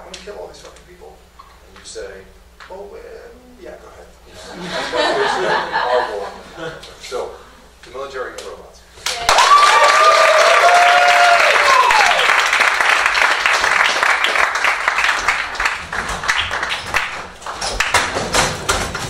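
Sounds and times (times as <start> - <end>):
people whooping and cheering: 9.0 - 12.6
audience applauding: 9.0 - 18.2.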